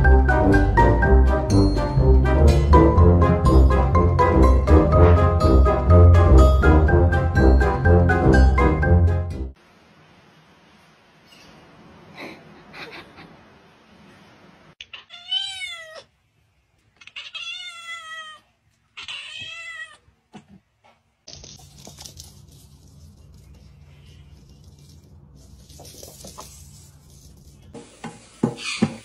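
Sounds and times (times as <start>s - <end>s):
cat meowing: 14.8s - 16.1s, 17.0s - 20.1s.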